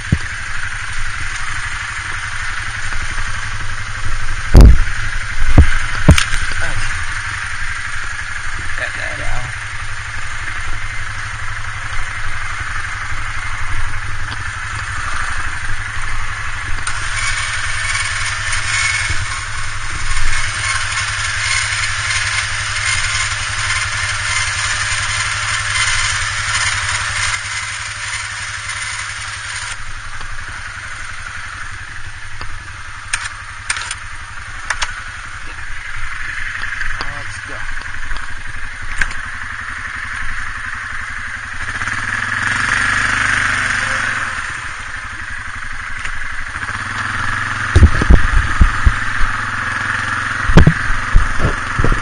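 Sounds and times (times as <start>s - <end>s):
engine idling: 0.0s - 52.0s
sharp clicks: 33.1s - 34.0s, 34.6s - 35.0s.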